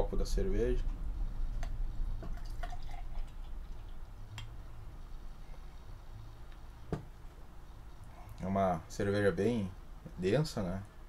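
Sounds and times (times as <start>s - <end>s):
low hum: 0.0s - 11.0s
beer pouring into glass mug: 2.2s - 4.0s.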